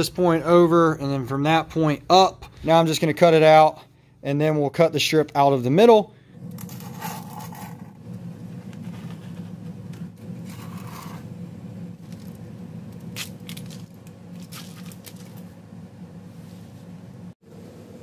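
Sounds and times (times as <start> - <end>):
steady low hum: 0.0 - 18.0
blade scraping through sheet: 6.6 - 8.0, 10.4 - 11.3.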